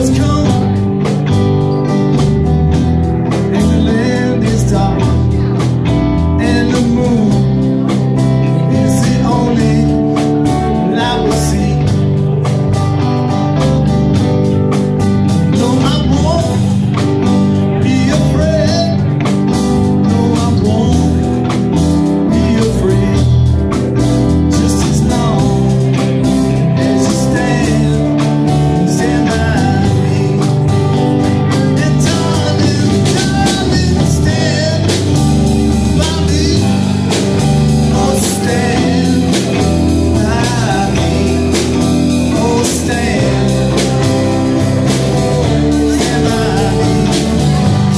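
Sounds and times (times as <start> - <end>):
bass guitar: 0.0 - 47.9
drum kit: 0.0 - 47.9
electric guitars: 0.0 - 47.9
keyboard: 0.0 - 47.9.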